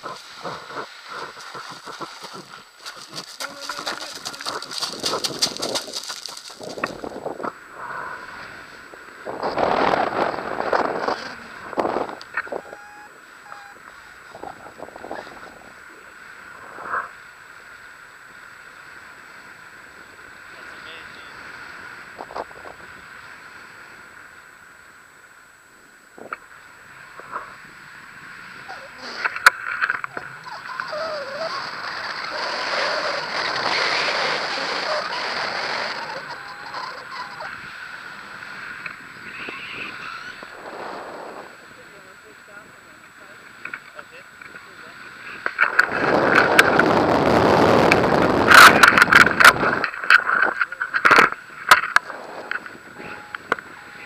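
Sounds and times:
wind buffeting microphone: 0.0 - 17.1, 27.2 - 43.8, 44.4 - 54.0
short beeps: 12.6 - 13.8, 52.4 - 54.0.

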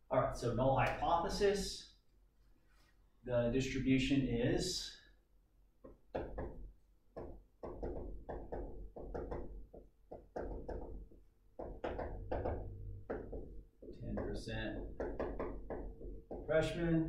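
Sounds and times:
pen tapping on hard surface: 7.2 - 13.5.

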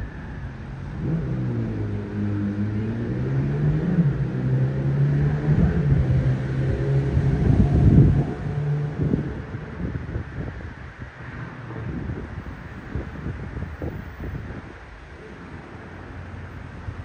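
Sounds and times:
wind buffeting microphone: 5.4 - 15.0.

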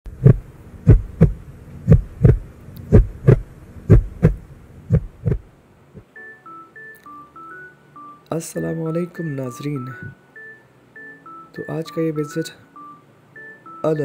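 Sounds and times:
deep heartbeat thumps: 0.1 - 5.5.

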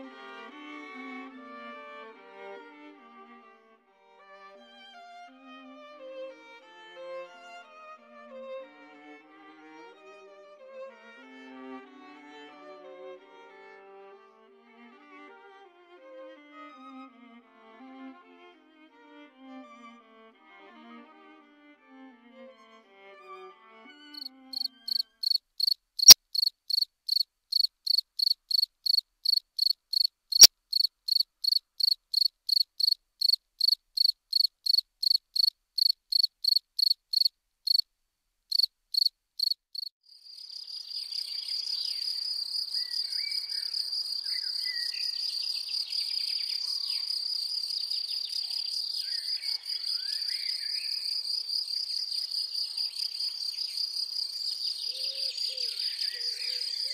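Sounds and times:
crickets chirping: 24.2 - 37.8, 38.5 - 56.9.

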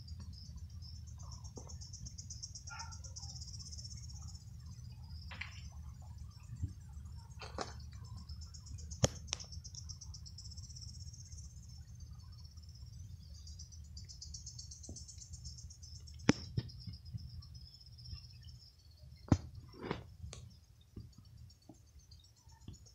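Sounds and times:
insects trilling: 0.0 - 22.9
sharp pops: 9.0 - 9.6, 16.2 - 17.0.

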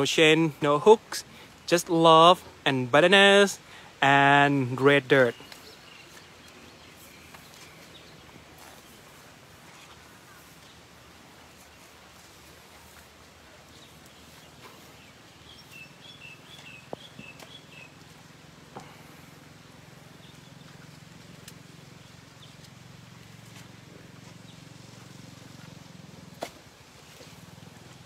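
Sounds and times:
light rain falling: 0.0 - 28.0
bird chirping: 4.9 - 10.8, 13.7 - 18.2.

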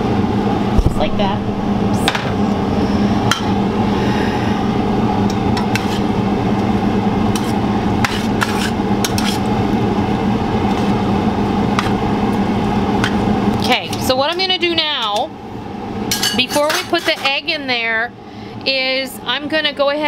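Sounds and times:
steady low hum: 0.0 - 19.9
metal tongs clinking on skillet: 16.1 - 17.4.

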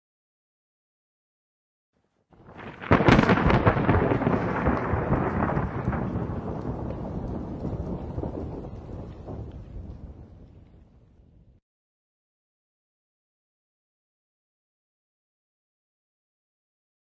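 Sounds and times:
thunderclap with rumble: 2.4 - 11.6.

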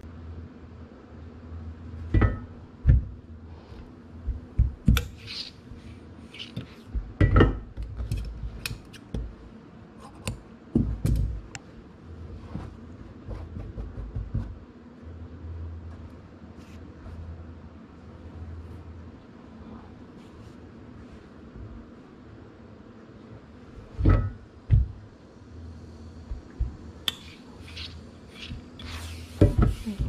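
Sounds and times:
fabric rustling: 12.2 - 13.9.

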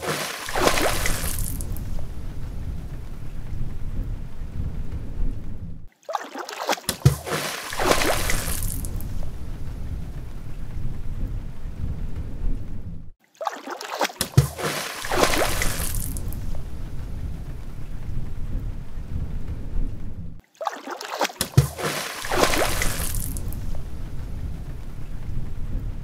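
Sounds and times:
water splashing spray: 0.0 - 1.9, 6.1 - 9.2, 13.4 - 16.4, 20.6 - 23.8.

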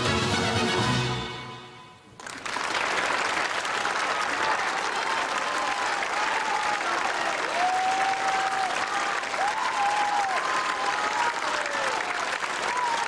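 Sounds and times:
song playing: 0.0 - 2.0
audience applause: 2.2 - 13.0.

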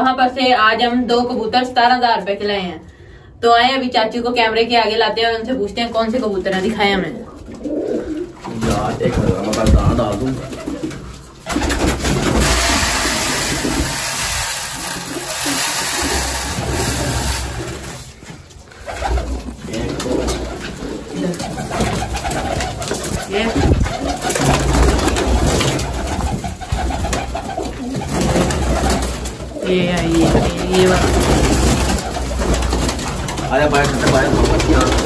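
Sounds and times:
pigeons cooing: 6.7 - 18.0, 18.7 - 35.0
wings flapping: 7.3 - 35.0.

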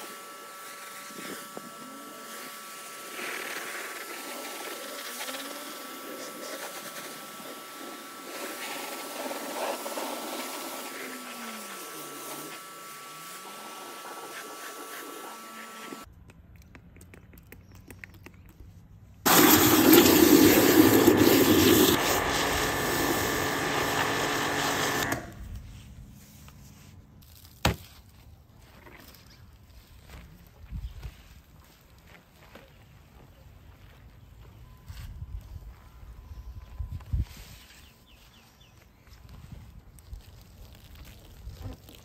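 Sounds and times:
pressure washer spraying water: 0.0 - 16.1, 19.3 - 25.4
water rushing into plastic bucket: 19.3 - 22.2.

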